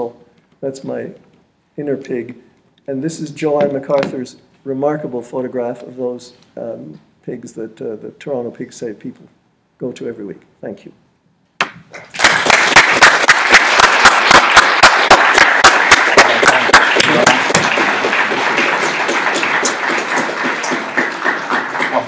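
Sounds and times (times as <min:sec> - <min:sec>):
loud nearby hand claps: 0:11.6 - 0:22.0
audience applauding: 0:12.0 - 0:22.0.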